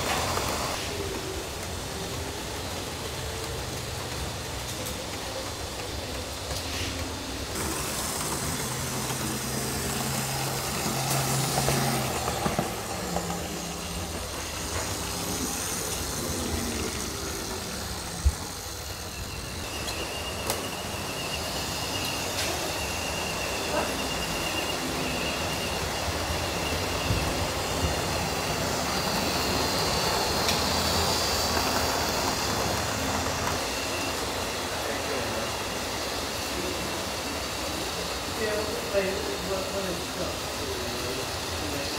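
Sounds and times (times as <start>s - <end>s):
model trains whirring and rumbling: 0.0s - 41.9s
thin whine: 4.9s - 41.9s.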